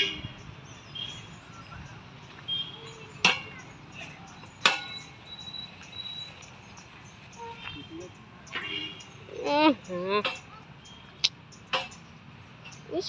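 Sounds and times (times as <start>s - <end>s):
swing chains clanking: 3.2s - 6.5s.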